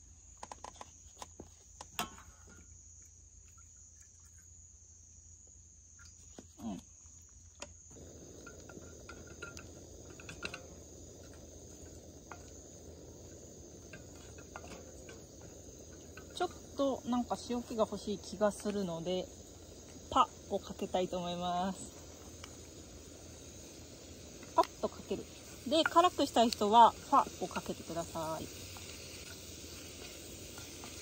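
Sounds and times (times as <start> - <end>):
crickets chirring: 0.0 - 31.0
pan and utensil clicks: 8.4 - 12.6, 13.2 - 16.6.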